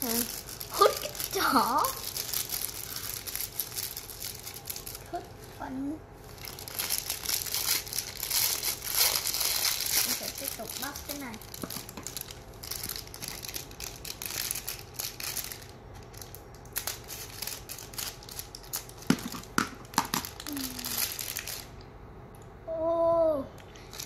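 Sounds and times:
plastic foil crackling: 0.0s - 21.8s, 23.8s - 24.0s
scissors cutting plastic: 6.6s - 15.5s, 16.1s - 21.6s.

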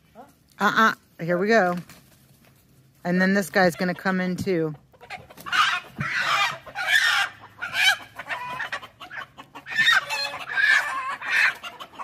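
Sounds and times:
rooster squawking and clucking: 3.6s - 12.0s.

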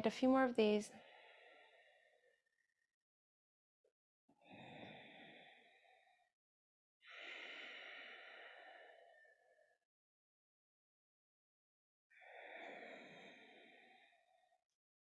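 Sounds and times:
woman breathing: 0.9s - 2.8s, 4.4s - 6.3s, 7.0s - 9.8s, 12.1s - 14.6s.

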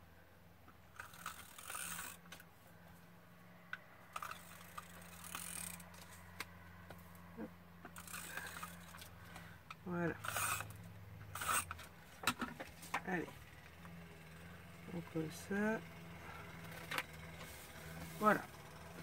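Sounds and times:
glue tape runner clicking and rasping: 4.2s - 6.6s, 10.2s - 12.5s.

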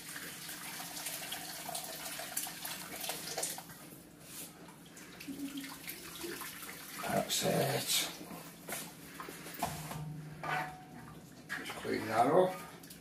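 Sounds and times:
water pouring into pan: 0.0s - 3.7s.

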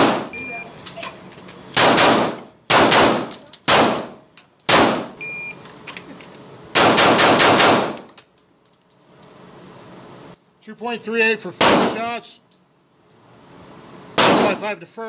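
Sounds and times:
pistol shots with echo: 1.8s - 4.1s, 6.8s - 8.0s, 11.6s - 12.0s, 14.2s - 14.6s.

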